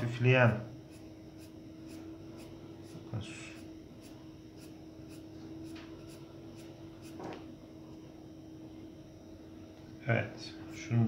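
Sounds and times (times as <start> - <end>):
pencil scratching on paper: 0.8 - 7.2.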